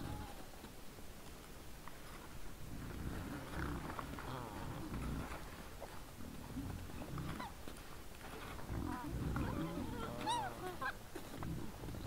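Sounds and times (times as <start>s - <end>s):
wild boars grunting: 2.7s - 7.6s, 8.5s - 12.0s.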